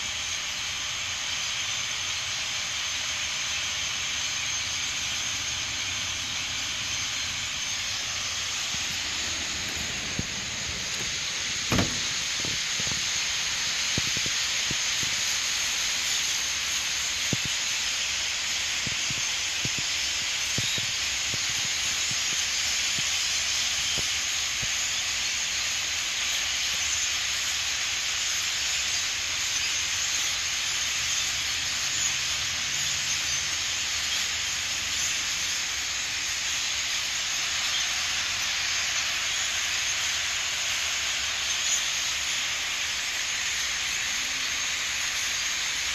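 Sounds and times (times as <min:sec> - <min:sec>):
starling flock hiss: 0:00.0 - 0:45.9
sharp knock: 0:09.7 - 0:12.6.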